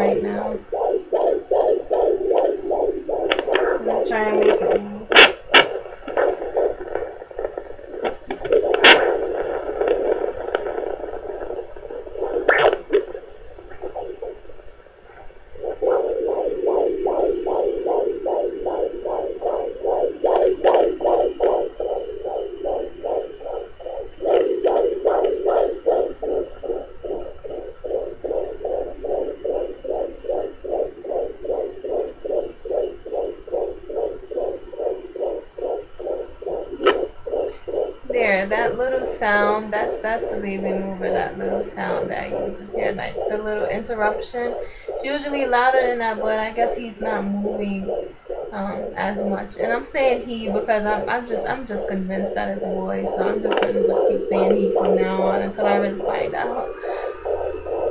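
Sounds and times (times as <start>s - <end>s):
static hiss: 0.0s - 57.9s
whooshing fetal heartbeat pulse: 0.0s - 57.9s
sharp crackles: 0.7s - 38.0s.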